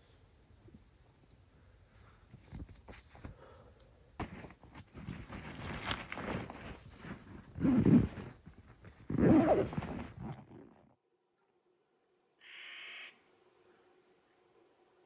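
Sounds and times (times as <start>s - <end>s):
fabric rustling: 4.2s - 11.0s.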